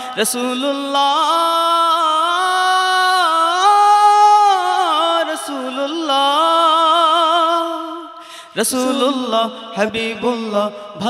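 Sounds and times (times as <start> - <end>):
man singing melismatic melody: 0.0 - 11.0.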